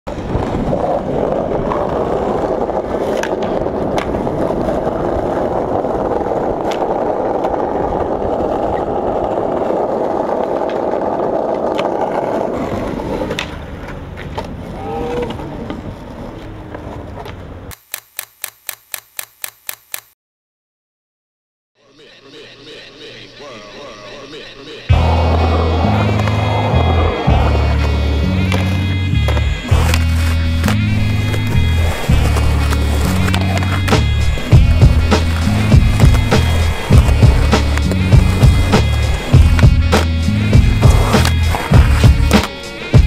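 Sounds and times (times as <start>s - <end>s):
skateboard wheels rolling on asphalt: 0.1s - 17.7s, 24.9s - 43.0s
sharp click: 17.7s - 20.2s.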